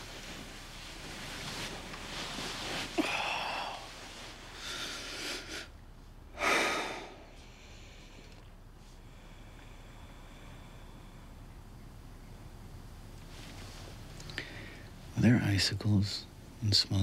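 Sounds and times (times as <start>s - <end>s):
man crying quietly: 2.9s - 3.9s.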